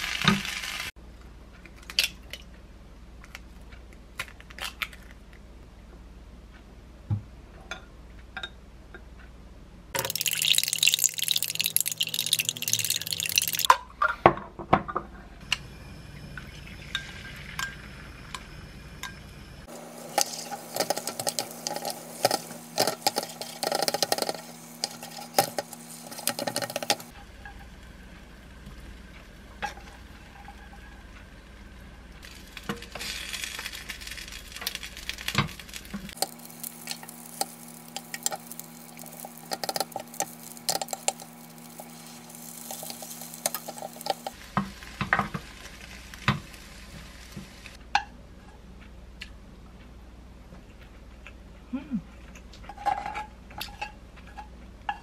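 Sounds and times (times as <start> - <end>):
egg sizzling in a pan: 0.0 - 1.0, 10.0 - 13.7, 16.3 - 47.8
spatula clicking and scraping pan: 20.1 - 27.6, 32.6 - 45.3, 52.6 - 55.0.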